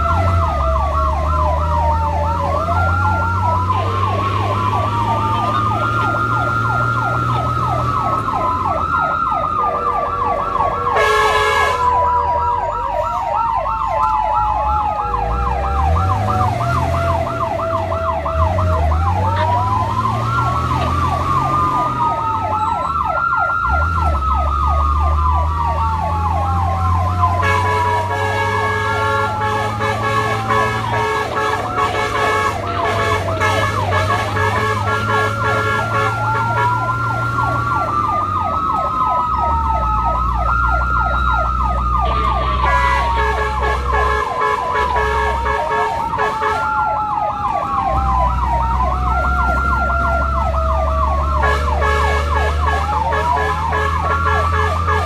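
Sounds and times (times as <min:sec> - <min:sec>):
engine running: 0:00.0 - 0:55.0
siren wail: 0:00.0 - 0:55.0
siren yelp: 0:00.0 - 0:55.0
vehicle horn blast: 0:11.0 - 0:11.9, 0:27.4 - 0:36.8, 0:42.0 - 0:46.7, 0:51.4 - 0:55.0.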